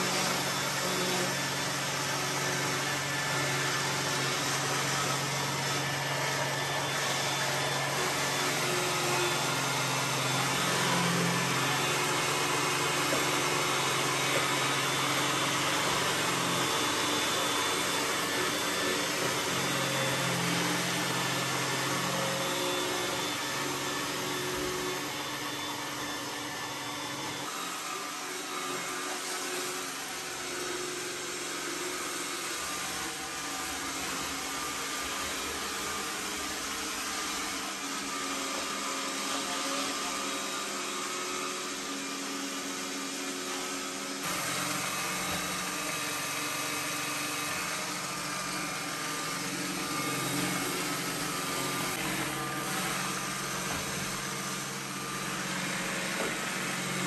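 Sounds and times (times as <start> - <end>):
robot vacuum whirring: 0.0 - 57.0.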